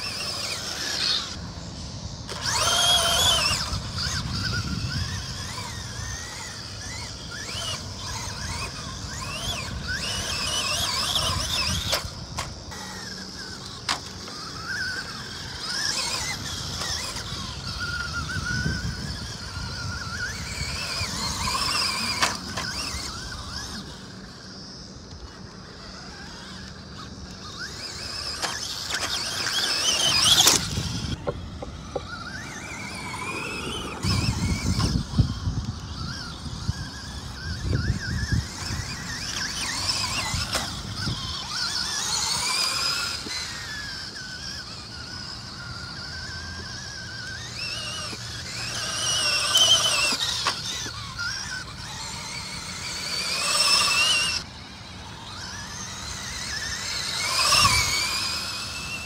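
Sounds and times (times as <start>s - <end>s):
electric motor whine: 0.0s - 59.0s.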